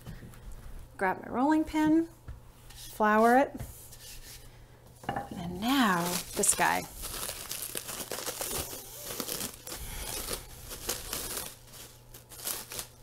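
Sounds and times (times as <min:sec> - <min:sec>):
cling wrap crinkling: 0:05.7 - 0:13.0.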